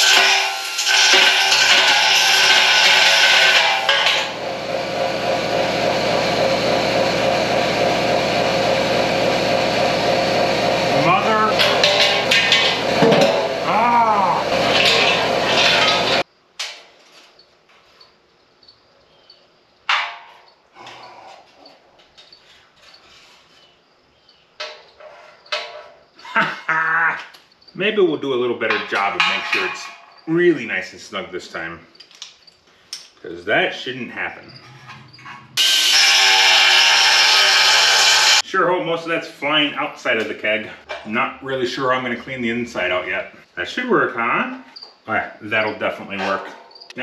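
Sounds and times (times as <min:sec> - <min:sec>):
air grinder grinding steel: 0:00.0 - 0:16.2, 0:34.5 - 0:38.4
machine hum: 0:00.0 - 0:16.2
ringing metal clanks: 0:28.7 - 0:30.2.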